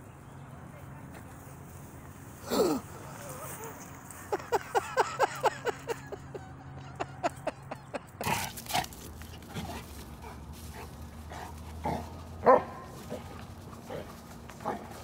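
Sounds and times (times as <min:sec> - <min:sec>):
dog barking: 0:12.4 - 0:13.0.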